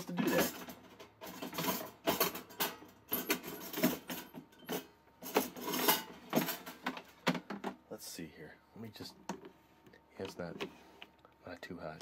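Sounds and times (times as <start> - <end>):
plastic and metal clattering: 0.0 - 7.8.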